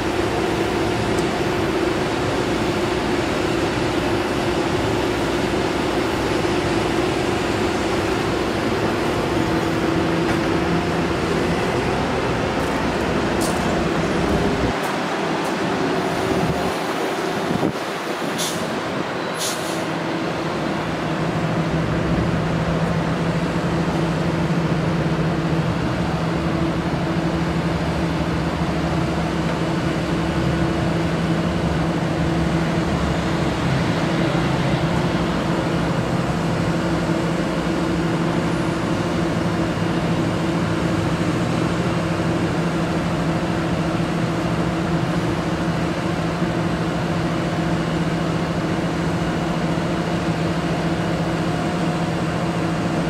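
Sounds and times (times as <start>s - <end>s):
truck engine running: 0.0s - 19.2s, 19.8s - 53.0s.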